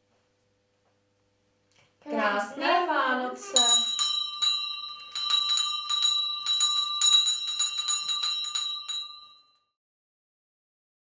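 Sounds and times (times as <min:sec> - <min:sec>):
hand bell ringing: 0:03.4 - 0:09.7.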